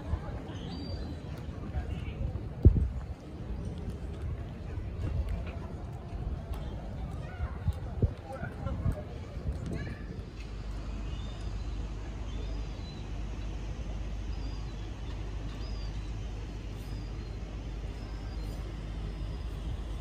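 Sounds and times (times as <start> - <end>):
distant traffic: 0.0 - 20.0
wind rumble: 1.4 - 11.0
faint high chirps: 14.2 - 20.0.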